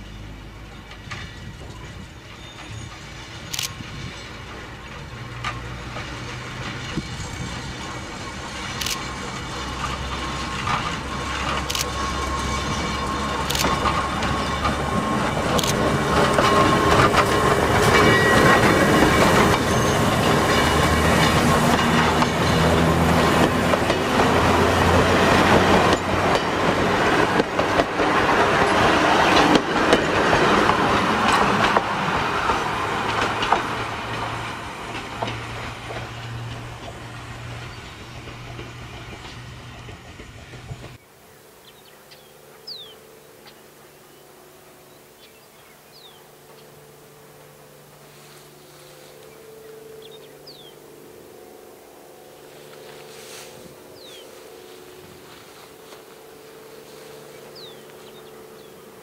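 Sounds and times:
electric train motor hum: 0.0s - 41.0s, 42.4s - 59.0s
wheels clicking over rail joints: 0.6s - 41.0s.

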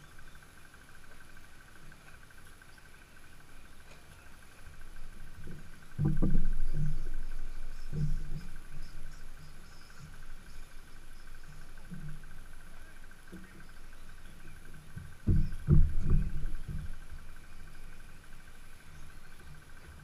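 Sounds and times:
faint high hum: 0.0s - 20.0s
low rumbling thumps: 4.6s - 20.0s.

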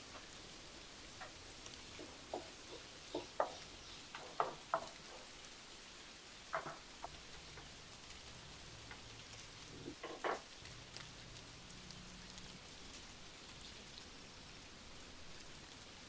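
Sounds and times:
faint steady hiss: 0.0s - 16.0s
light taps and clicks: 1.2s - 5.3s.

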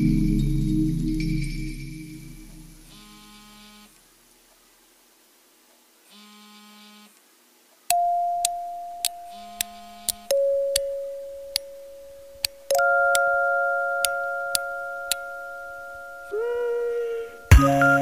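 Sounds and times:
lower electronic tone: 0.0s - 3.9s, 8.0s - 18.0s
faint buzzing hum: 0.0s - 18.0s
loud electronic tone: 2.8s - 3.9s, 12.8s - 18.0s.

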